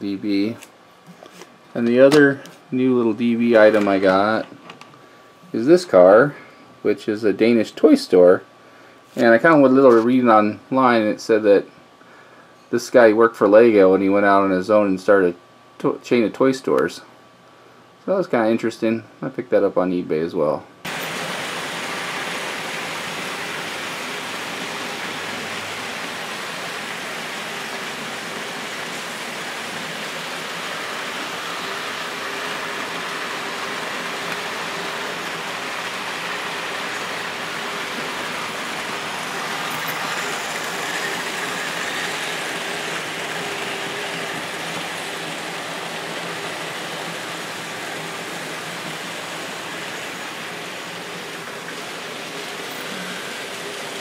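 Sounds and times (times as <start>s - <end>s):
model trains running on track: 20.9s - 54.0s.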